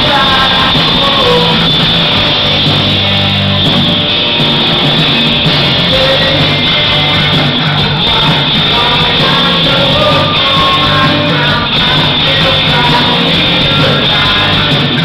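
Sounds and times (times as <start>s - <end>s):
man singing: 0.0s - 3.4s, 5.6s - 15.0s
live rock band playing: 0.0s - 15.0s.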